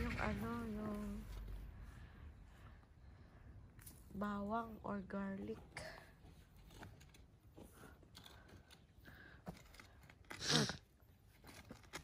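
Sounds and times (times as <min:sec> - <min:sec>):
faint clicks and rustles: 0:05.5 - 0:12.0.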